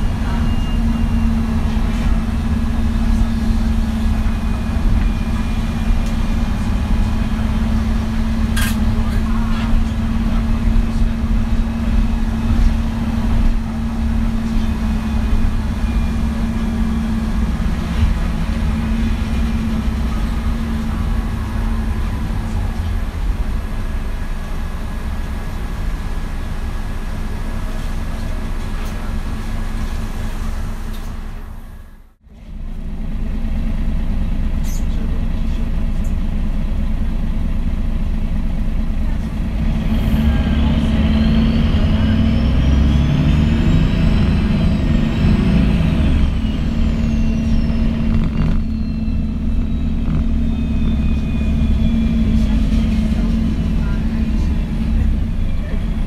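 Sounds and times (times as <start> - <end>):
bus engine drone: 0.0 - 56.0
faint rising whine: 40.9 - 56.0.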